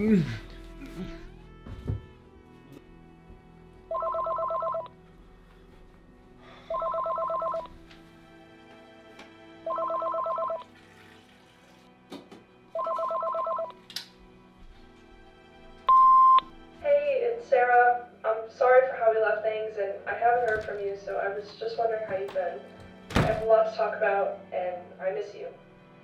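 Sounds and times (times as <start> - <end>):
electronic telephone ringing: 3.9 - 4.9, 6.7 - 7.7, 9.7 - 10.6, 12.8 - 13.8.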